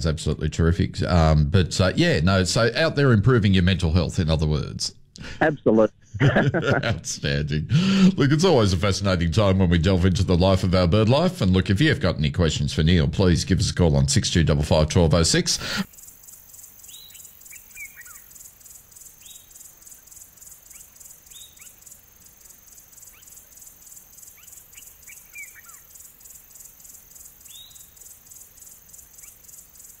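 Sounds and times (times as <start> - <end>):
birds chirping: 12.9 - 30.0
insects trilling: 15.6 - 30.0.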